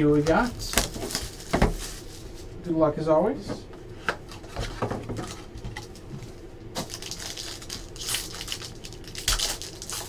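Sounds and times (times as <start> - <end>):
foil pack crinkling: 0.3 - 2.5, 6.7 - 10.0.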